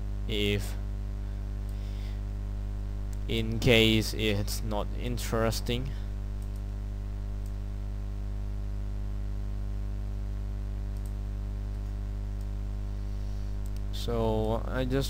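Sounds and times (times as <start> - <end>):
electrical mains hum: 0.0 - 15.0
computer mouse clicks: 6.4 - 6.7, 10.9 - 12.5, 13.6 - 14.6.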